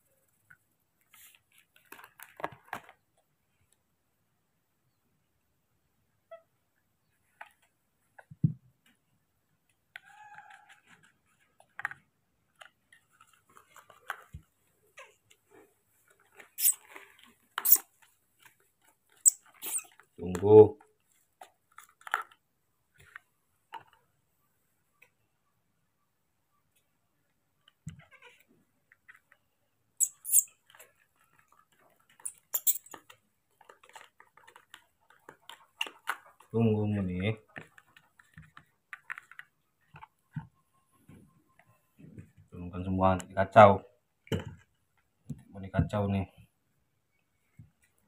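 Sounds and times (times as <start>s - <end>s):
spoon scraping plastic bowl: 32.2s - 32.9s.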